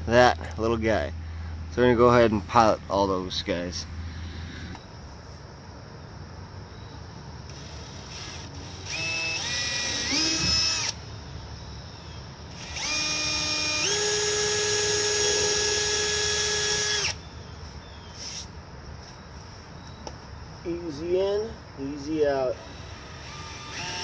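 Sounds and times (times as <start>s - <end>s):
cordless drill whining: 7.5s - 11.0s, 12.5s - 17.2s, 22.6s - 24.0s.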